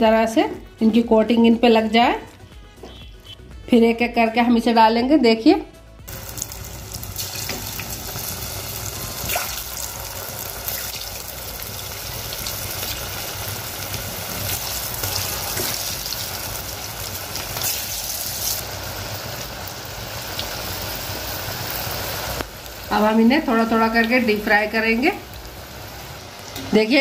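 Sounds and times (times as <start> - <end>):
potato sticks deep-frying in oil: 6.1 - 27.0.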